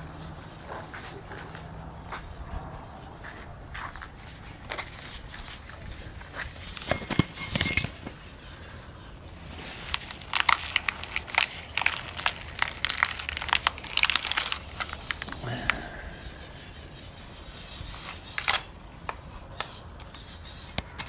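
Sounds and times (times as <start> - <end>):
lettuce leaves crackling: 9.4 - 16.2.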